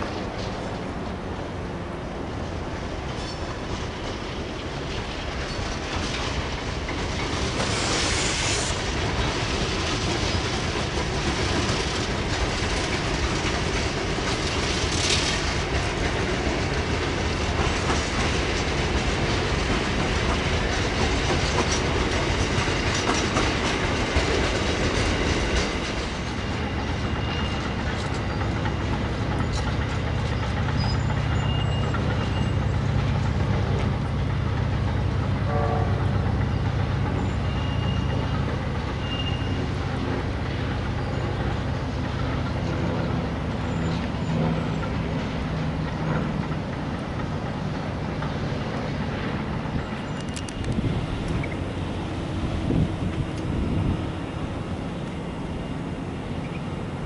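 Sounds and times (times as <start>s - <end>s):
diesel locomotives passing: 0.0s - 57.0s
wheels clacking over rail joints: 0.0s - 57.0s
high wheel squeal: 26.4s - 32.9s, 36.4s - 39.9s, 40.8s - 42.0s, 42.6s - 45.3s.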